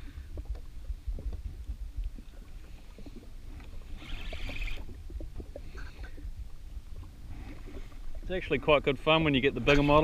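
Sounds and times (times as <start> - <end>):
wind rumble: 0.0 - 9.6
water lapping at hull: 0.0 - 10.0
fishing reel clicking: 4.0 - 4.9.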